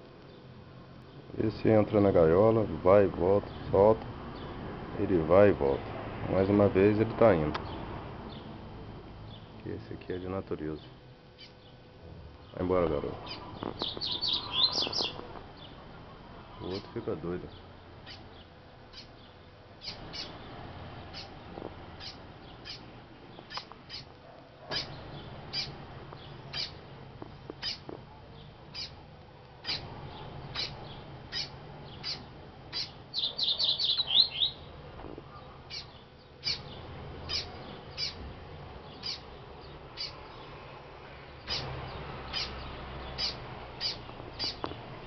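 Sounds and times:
bird chip calls: 10.8 - 11.8, 13.2 - 29.0, 29.6 - 38.2, 38.8 - 40.6, 41.4 - 45.0.

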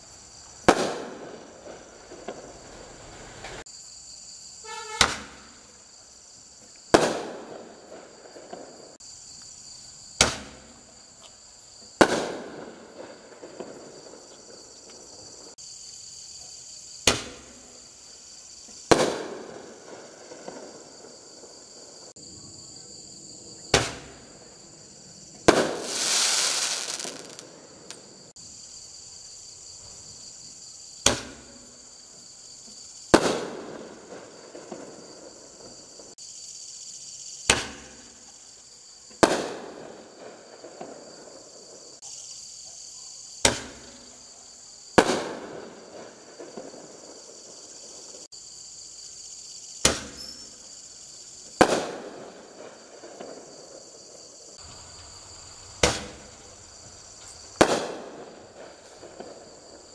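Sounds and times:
insects chirping: 0.0 - 59.9
mortar launch thump: 10.2 - 10.8, 17.0 - 17.6, 23.7 - 24.2, 31.0 - 31.6, 37.5 - 38.1, 49.8 - 50.3, 55.8 - 56.5.

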